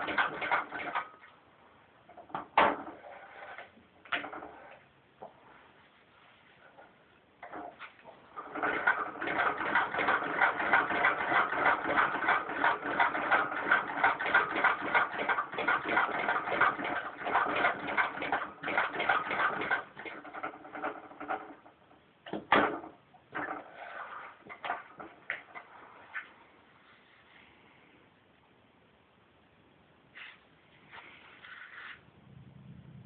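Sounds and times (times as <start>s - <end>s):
sewing machine clattering: 0.0s - 1.2s, 7.4s - 21.6s
sewing machine rasp: 8.4s - 21.0s.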